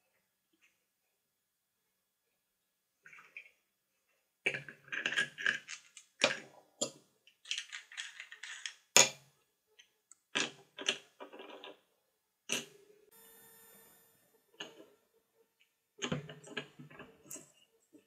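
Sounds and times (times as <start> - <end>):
plastic parts clicking and clattering: 4.5 - 11.9.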